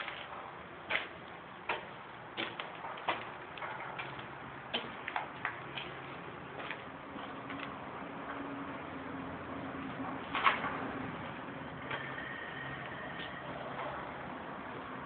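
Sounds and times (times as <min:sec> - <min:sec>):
footsteps on gritty concrete: 0:00.0 - 0:07.8.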